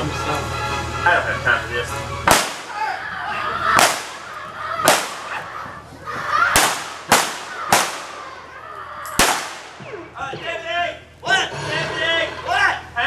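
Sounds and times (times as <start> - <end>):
revolver shots with ringing tails: 6.6 - 8.4.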